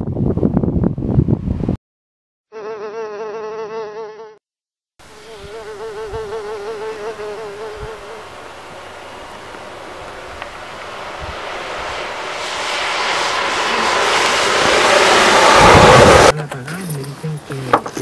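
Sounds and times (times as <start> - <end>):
insect buzzing: 2.5 - 4.4, 5.0 - 10.6
steady rushing noise: 8.2 - 16.4.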